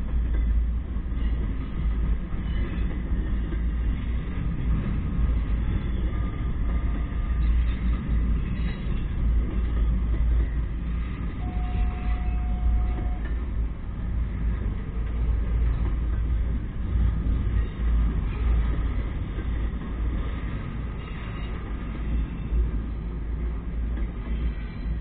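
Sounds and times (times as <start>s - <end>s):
freight train rumbling past: 0.0s - 25.0s
brief steady tone: 11.4s - 13.4s.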